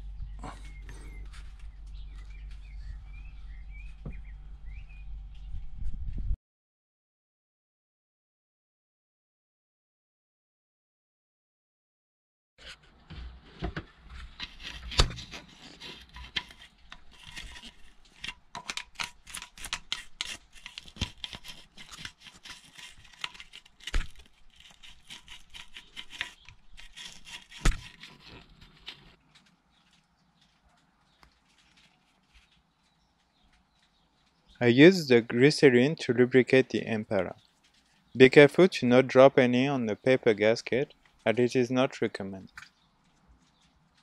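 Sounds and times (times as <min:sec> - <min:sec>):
toothbrush scrubbing metal housing: 0:14.3 - 0:29.1.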